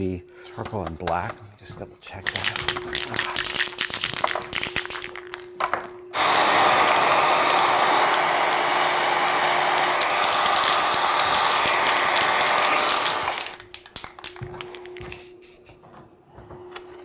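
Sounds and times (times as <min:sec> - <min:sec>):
electric blow dryer running: 0:06.1 - 0:13.7.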